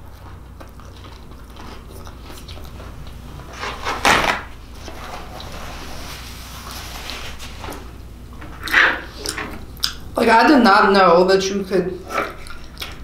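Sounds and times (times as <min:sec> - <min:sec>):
soft chewing: 0:00.0 - 0:03.5, 0:12.0 - 0:13.0.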